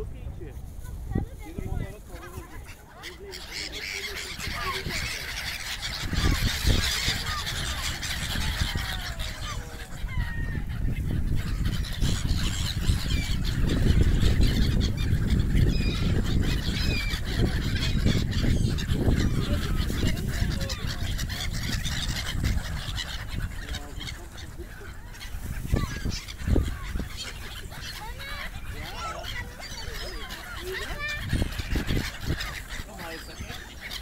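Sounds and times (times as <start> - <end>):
gulls calling: 1.1 - 34.0.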